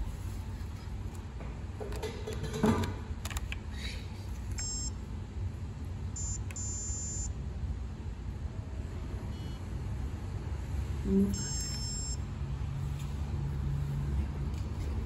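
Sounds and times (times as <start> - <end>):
card reader beeps: 4.6 - 5.0, 6.2 - 7.4, 11.4 - 12.2.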